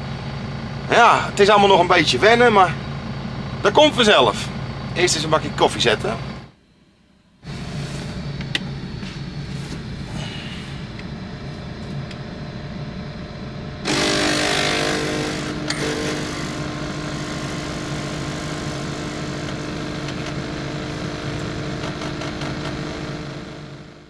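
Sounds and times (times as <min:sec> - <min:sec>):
coffee machine hum: 0:00.0 - 0:06.6, 0:07.4 - 0:24.0
coffee machine pump buzzing: 0:07.4 - 0:24.0.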